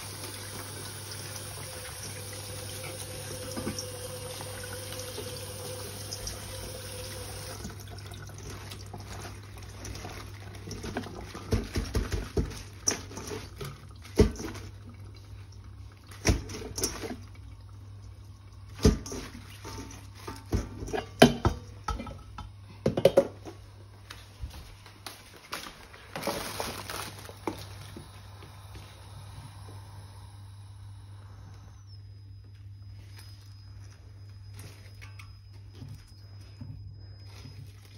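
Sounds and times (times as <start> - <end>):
tap water running: 0.0 - 23.6, 26.1 - 31.0
metal colander knocks and clatters: 18.8 - 23.4
steady low hum: 26.8 - 37.9.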